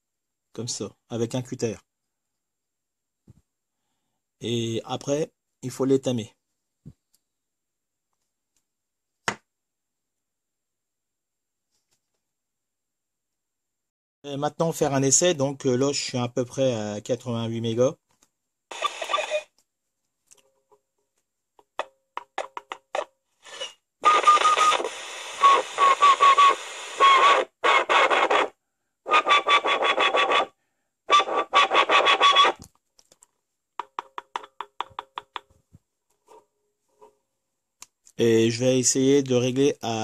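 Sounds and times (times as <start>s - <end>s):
radio static and hiss: 18.7s - 19.5s, 24.0s - 30.5s, 31.1s - 32.6s
radio clicks: 18.7s - 19.6s, 24.0s - 28.5s.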